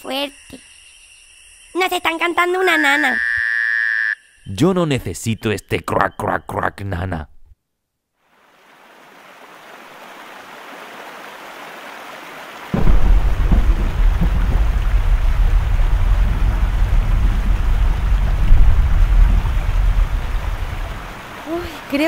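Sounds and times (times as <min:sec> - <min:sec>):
heavy rain: 0:08.3 - 0:22.0
thunderclap: 0:12.7 - 0:21.9
deep rumble of thunder: 0:12.8 - 0:21.8.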